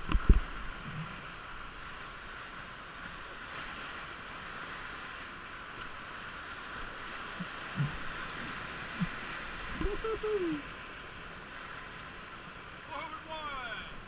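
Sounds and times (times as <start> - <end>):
whitewater rushing: 3.3 - 14.0.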